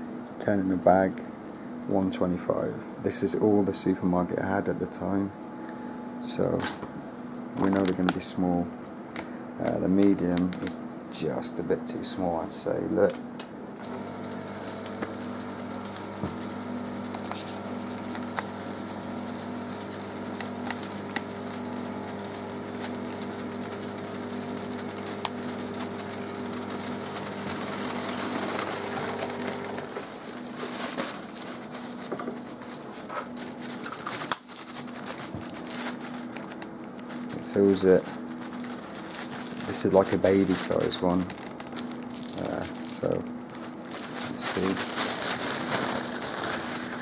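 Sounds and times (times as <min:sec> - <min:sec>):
air pump humming and hissing: 0:00.0 - 0:47.0
plastic bag crinkling: 0:13.8 - 0:47.0
plastic bag rustling: 0:13.8 - 0:47.0.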